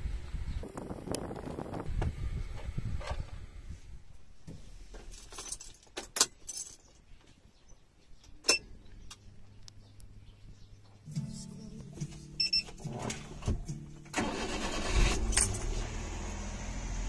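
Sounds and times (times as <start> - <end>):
car keys jingling: 5.0 - 6.9, 14.1 - 15.8.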